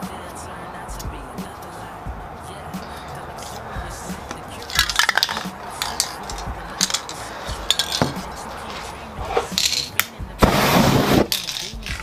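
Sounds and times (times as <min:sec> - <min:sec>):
spray can hissing: 0:02.8 - 0:12.0
spray cans clinking and knocking: 0:02.8 - 0:12.0.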